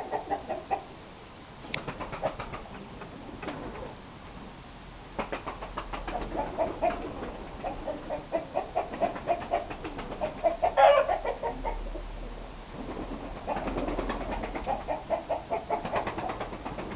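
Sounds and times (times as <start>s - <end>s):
chicken squawk: 0.0s - 1.0s, 6.1s - 12.0s, 14.5s - 16.1s
chickens clucking: 0.0s - 1.0s, 5.2s - 16.9s.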